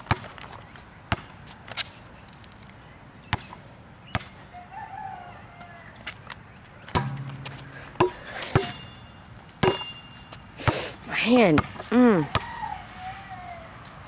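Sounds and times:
basketball bouncing on concrete: 0.0 - 0.4, 1.1 - 1.3, 3.3 - 3.5, 4.1 - 4.4, 6.9 - 12.5
rooster crowing: 4.5 - 6.0, 12.3 - 13.8.

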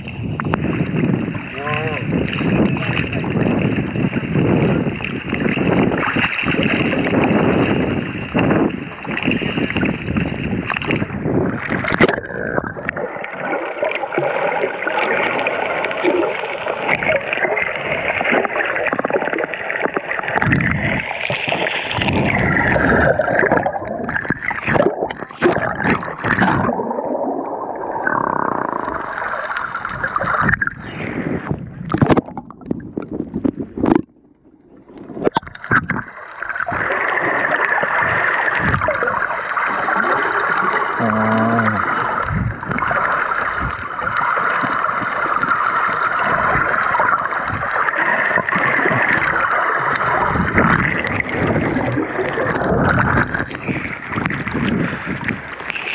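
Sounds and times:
underwater water rushing: 0.0 - 55.9
sharp splashes and knocks: 17.4 - 26.9, 31.4 - 34.2.

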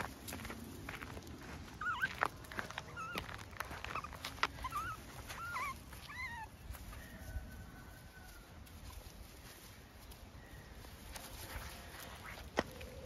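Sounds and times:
footsteps on gravel: 0.0 - 13.0
puppies whimper-chirping: 1.7 - 7.0.

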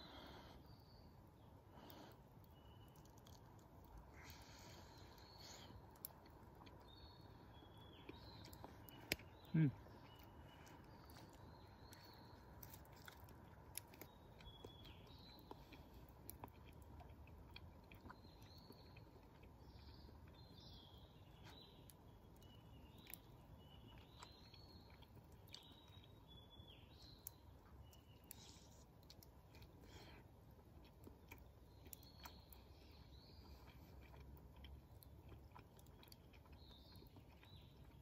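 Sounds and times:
soft clicks and crackles: 1.9 - 6.9.

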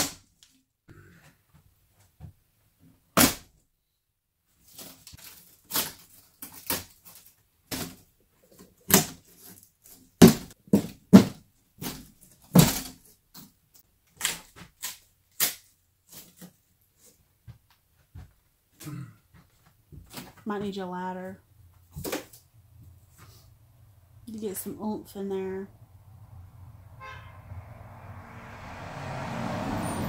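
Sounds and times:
wood trim being pried off: 5.6 - 16.5.

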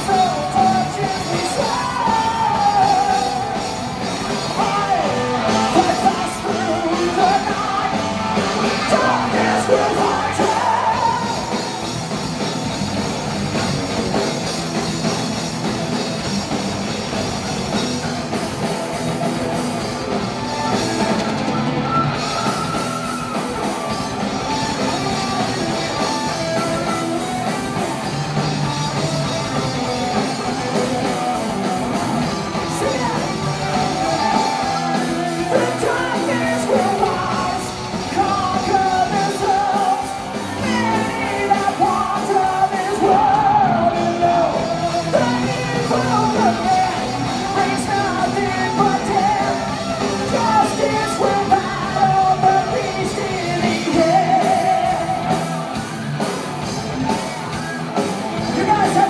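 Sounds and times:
singer's vocals: 0.0 - 12.1, 29.5 - 56.2, 57.3 - 59.0
drums: 0.0 - 59.0
electric guitars: 0.0 - 59.0.

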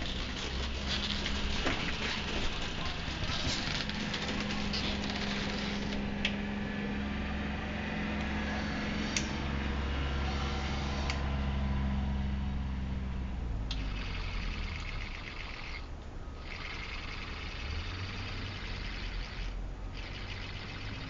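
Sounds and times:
robot electric motor hum: 0.0 - 6.1, 10.2 - 11.3, 13.7 - 21.0.

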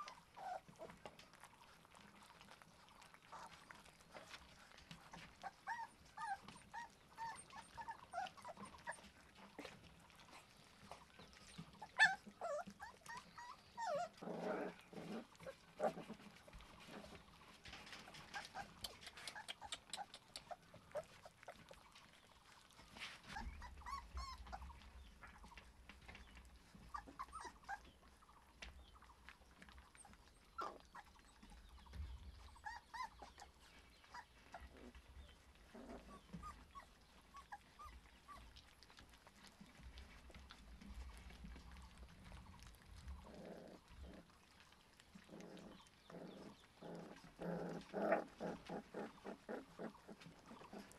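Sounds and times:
puppy whimpers and squeaks: 0.0 - 1.0, 5.0 - 9.8, 10.8 - 14.2, 16.8 - 28.2, 29.9 - 38.8
puppies chewing wetly: 0.0 - 50.9.

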